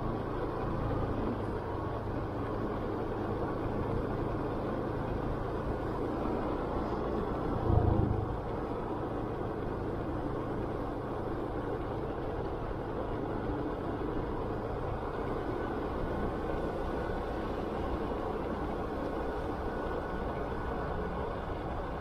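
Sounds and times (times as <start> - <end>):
motorcycle engine rumble: 0.0 - 22.0
wind and road noise: 0.0 - 22.0
low thump: 7.6 - 8.5.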